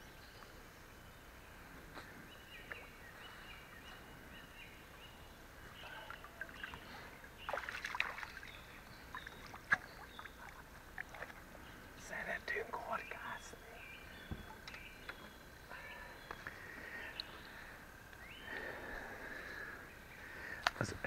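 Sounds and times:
water splashing: 5.8s - 11.6s.

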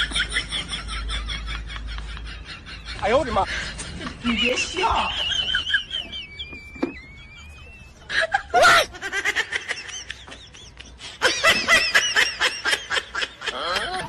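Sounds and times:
person laughing: 0.0s - 14.0s.

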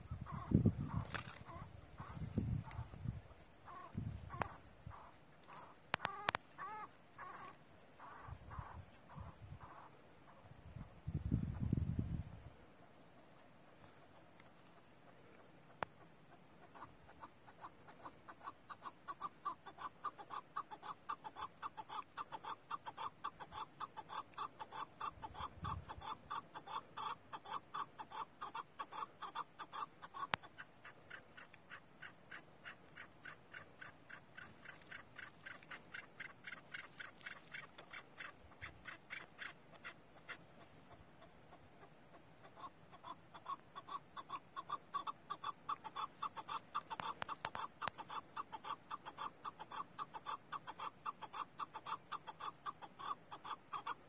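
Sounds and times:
partridge clucking calls: 0.0s - 54.0s.

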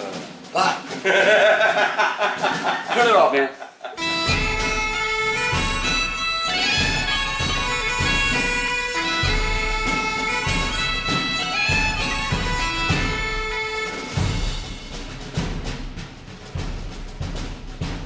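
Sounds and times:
bagpipe music: 4.0s - 14.9s.

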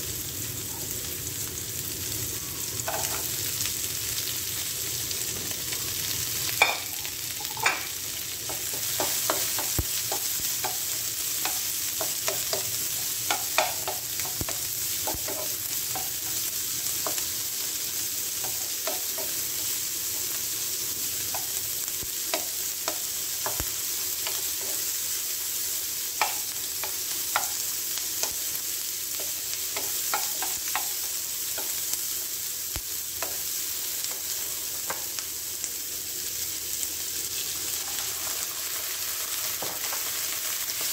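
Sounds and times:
vegetables sizzling in a wok: 0.0s - 40.9s
spatula scraping and tapping pan: 6.6s - 16.4s, 22.3s - 24.9s, 26.2s - 27.6s, 29.1s - 31.8s.

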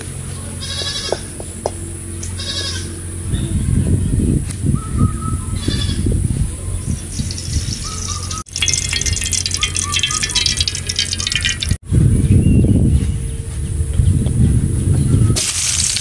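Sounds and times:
goat bleating: 0.6s - 1.3s, 2.4s - 3.0s.

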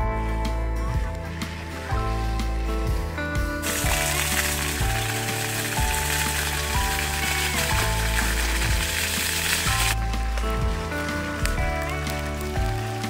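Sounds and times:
background music low notes: 0.0s - 13.0s
water rushing from a hose: 3.6s - 13.0s.

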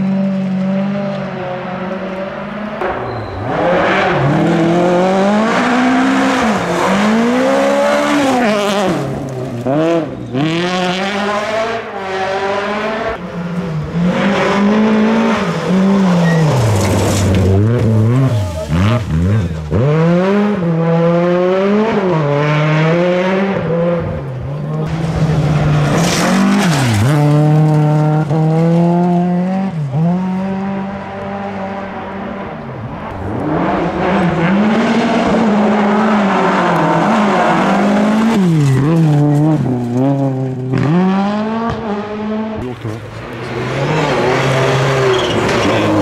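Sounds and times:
rally car engines revving: 0.0s - 46.0s
gravel spraying from tyres: 16.2s - 19.0s.

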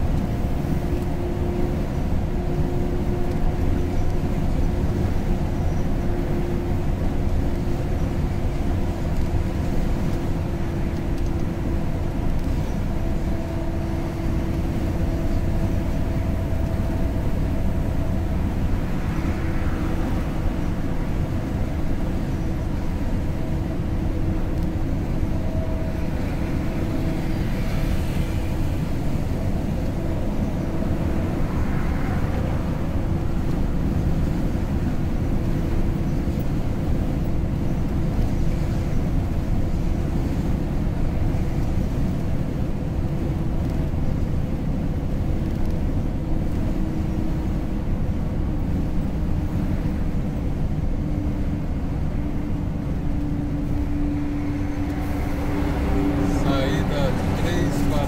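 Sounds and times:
road noise: 0.0s - 58.0s
vehicle engine drone: 0.0s - 58.0s
rushing noise: 14.0s - 58.0s.

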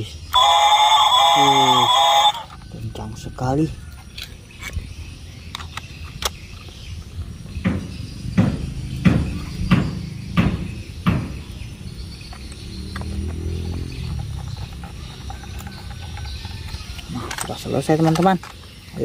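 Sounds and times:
plastic toy parts clicking: 3.9s - 4.8s, 5.5s - 6.8s, 12.3s - 18.9s
sharp knocks: 7.6s - 11.5s.

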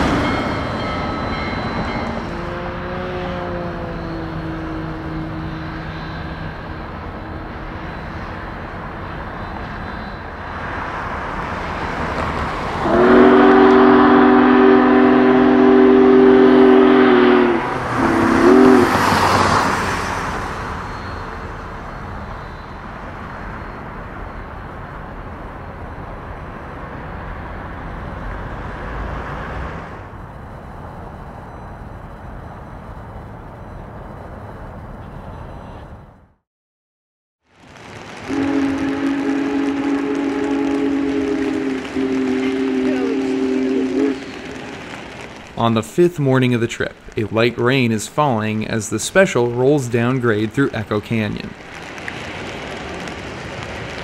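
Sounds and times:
steam locomotive whistle: 0.0s - 7.0s, 12.8s - 19.8s, 38.2s - 44.9s
train running: 0.0s - 36.3s, 37.6s - 54.0s.

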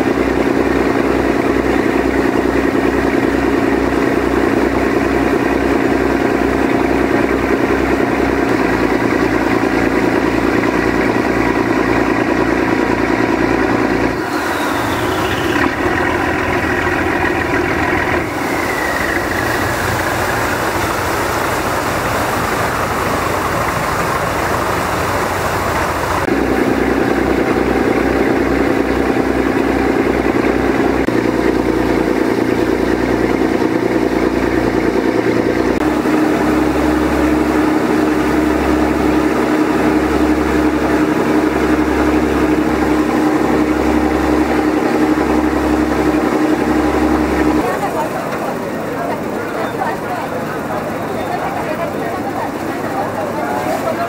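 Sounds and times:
motorboat engine running: 0.0s - 54.0s
water rushing past: 0.1s - 54.0s
whine falling in pitch: 13.3s - 25.0s
hiss: 14.2s - 15.7s, 18.2s - 26.3s.

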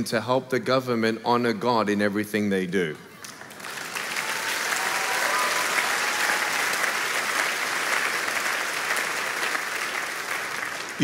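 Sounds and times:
crowd applauding: 3.2s - 11.0s.

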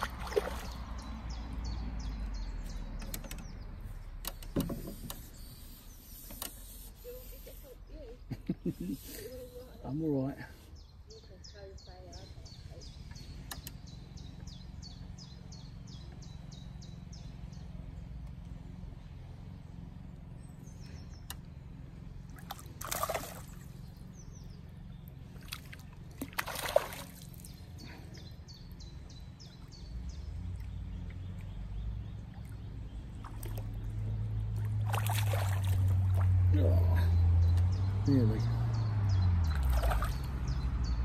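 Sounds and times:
water splashing: 0.0s - 1.3s, 22.3s - 23.9s, 25.2s - 27.8s, 32.1s - 36.9s, 39.4s - 40.7s
low steady rumble: 0.0s - 41.0s.

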